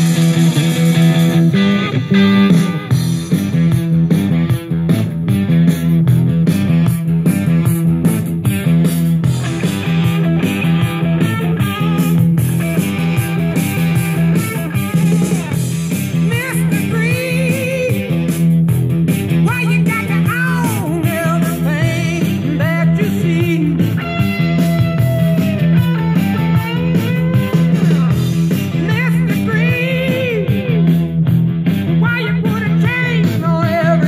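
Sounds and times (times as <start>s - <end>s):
rock music with guitar and singing: 0.0s - 34.0s.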